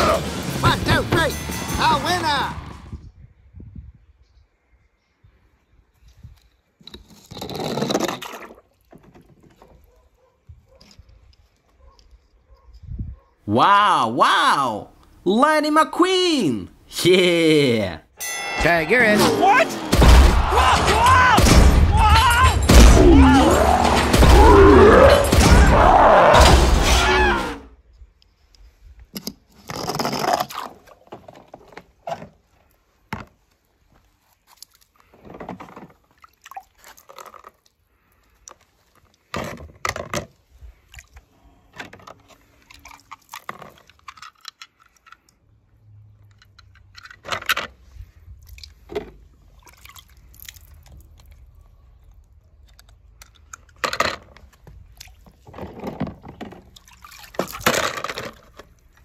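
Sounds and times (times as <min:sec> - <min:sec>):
water splashing and dripping: 0:36.0 - 0:37.8, 0:42.4 - 0:44.3, 0:48.3 - 0:53.6, 0:54.6 - 0:55.5, 0:56.5 - 0:59.0
toys knocking and rattling: 0:52.8 - 0:54.8, 0:57.4 - 0:58.8.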